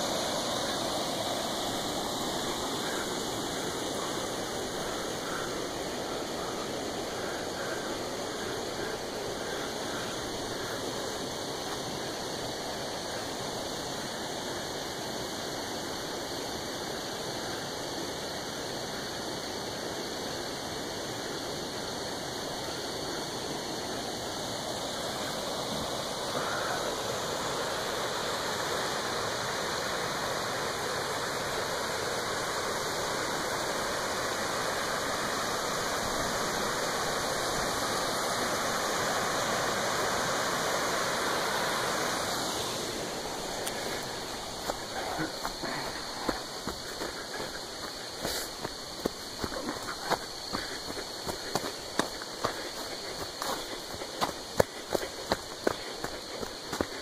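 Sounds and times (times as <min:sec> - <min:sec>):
stream rushing over rocks: 0:00.0 - 0:57.0.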